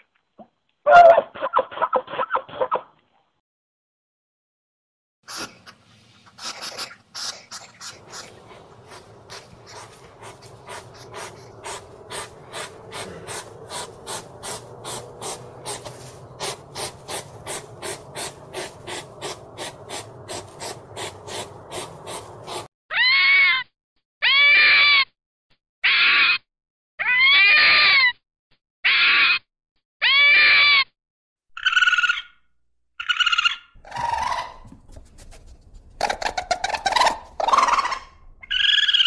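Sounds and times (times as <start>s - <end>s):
hedgehog snuffling and sniffing: 5.3s - 22.7s, 33.8s - 38.8s
fox screaming calls: 6.4s - 23.6s, 24.2s - 25.0s, 25.8s - 26.4s, 27.0s - 28.1s, 28.8s - 29.4s, 30.0s - 30.8s, 33.0s - 34.8s, 36.0s - 39.0s.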